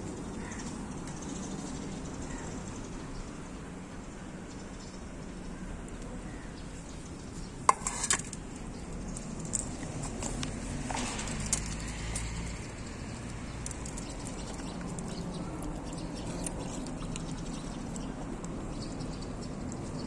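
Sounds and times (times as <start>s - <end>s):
dog chewing and smacking: 13.2s - 20.0s
teeth clicking against metal bowl: 13.5s - 19.0s.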